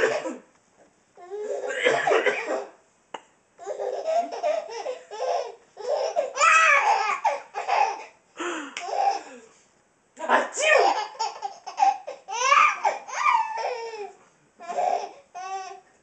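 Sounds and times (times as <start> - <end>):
baby laughing hard: 3.6 - 8.2, 8.8 - 9.3, 10.7 - 15.8.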